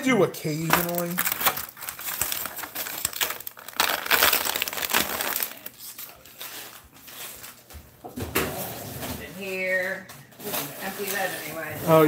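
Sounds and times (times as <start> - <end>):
foam egg carton crunching: 0.6 - 5.8.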